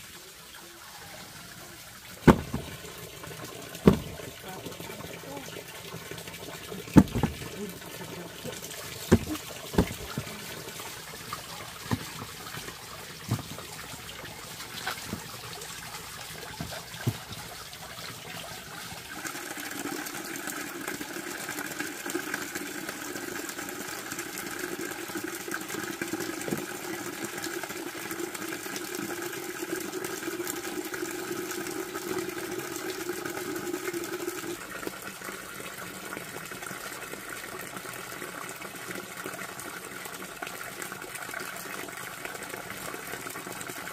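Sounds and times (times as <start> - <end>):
water running: 0.0 - 37.8
sharp knocks: 2.2 - 2.8, 3.8 - 4.2, 7.0 - 7.4, 9.1 - 10.3.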